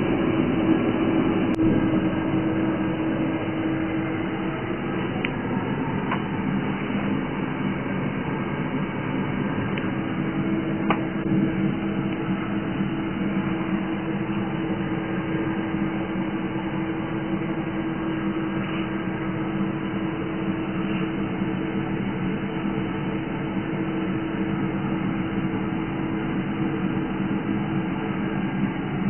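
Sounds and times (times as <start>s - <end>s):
machine hum with low drone: 0.0s - 29.0s.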